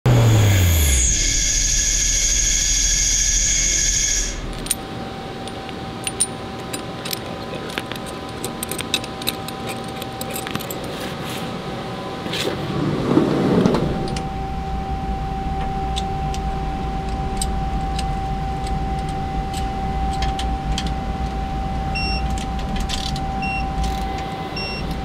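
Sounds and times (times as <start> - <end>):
lathe spindle high whine: 0.0 - 12.3, 13.7 - 25.0
metallic clicks and clinks: 5.5 - 11.0, 22.2 - 24.3.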